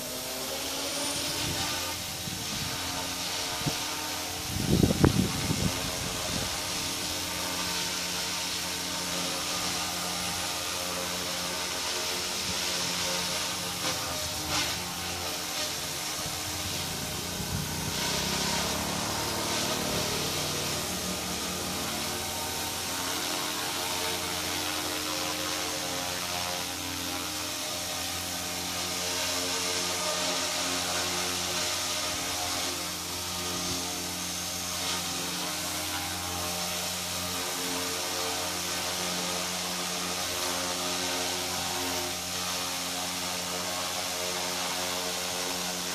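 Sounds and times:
model helicopter hovering: 0.0 - 45.9.

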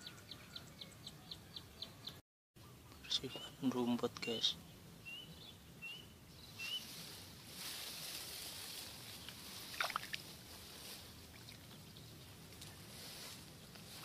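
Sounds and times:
bird chirp: 0.0 - 7.2
rice plants rustling: 6.6 - 14.0.

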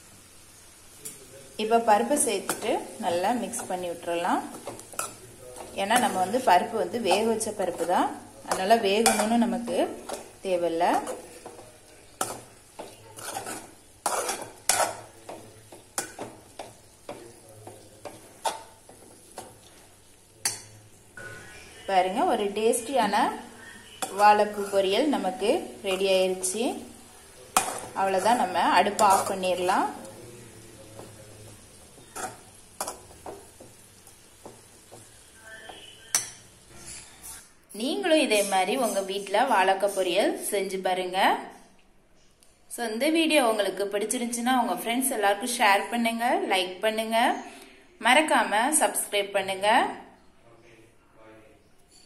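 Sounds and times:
light sizzle: 0.0 - 50.3
spatula scraping a pan: 2.3 - 30.2, 30.8 - 37.5
spatula clinking against pan: 32.0 - 33.6, 35.7 - 37.1.

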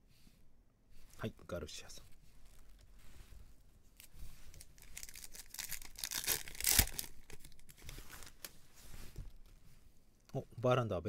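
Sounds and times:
foil wrapper tearing: 4.5 - 8.3
foil wrapper crinkling: 4.5 - 8.5.

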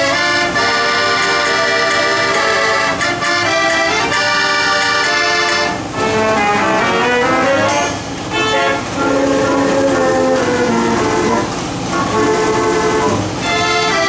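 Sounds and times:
automatic orchestrion playing a tune: 0.0 - 14.0.

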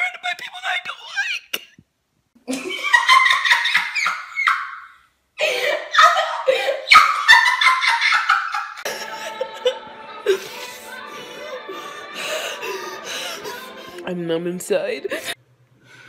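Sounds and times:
girl giggling: 2.5 - 11.6
woman wailing and sobbing: 5.4 - 8.2, 8.8 - 14.2, 15.0 - 15.4
music: 8.9 - 15.4.

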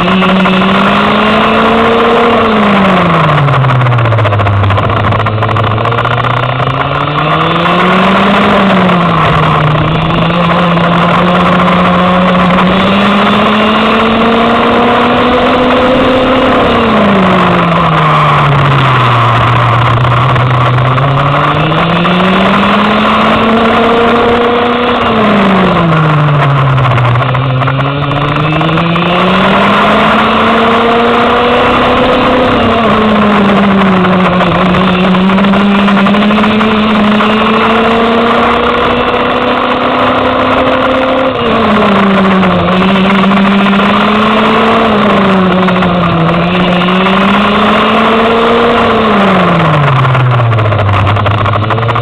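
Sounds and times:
go-kart engine revving: 0.0 - 52.0.

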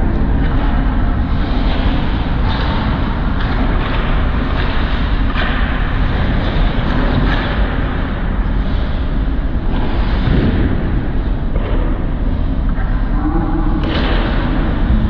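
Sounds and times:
low rumble and hiss: 0.0 - 15.0
sticks and skates on ice: 0.4 - 9.0.

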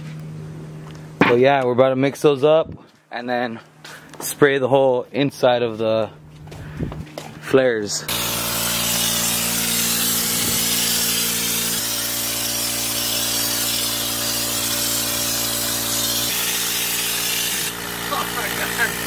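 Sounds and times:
motor hum: 6.0 - 19.0
spray gun hissing: 8.1 - 19.0.

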